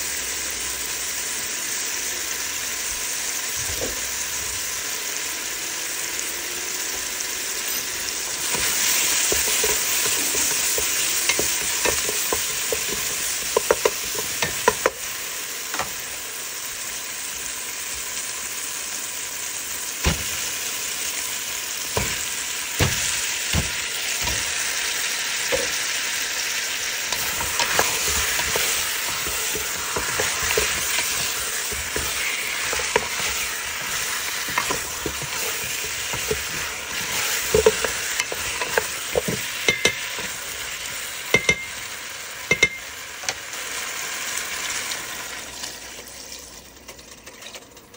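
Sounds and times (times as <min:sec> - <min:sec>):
food sizzling in a pot: 0:00.0 - 0:47.9
wooden spoon knocking on pot: 0:08.5 - 0:15.1, 0:21.9 - 0:24.6, 0:27.1 - 0:40.4, 0:41.3 - 0:41.8, 0:42.5 - 0:42.8.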